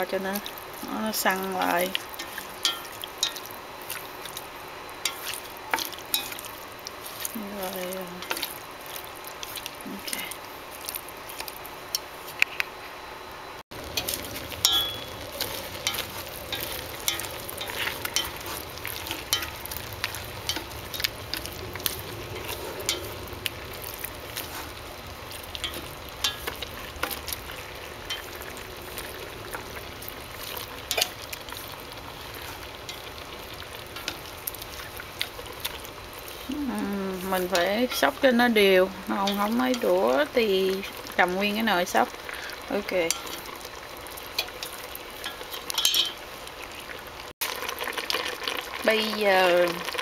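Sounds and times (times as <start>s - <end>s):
food sizzling in a metal pot: 0.0s - 12.6s, 13.7s - 50.0s
chopsticks tapping a pot: 1.3s - 3.4s, 13.9s - 23.2s, 39.2s - 41.0s, 44.4s - 46.2s.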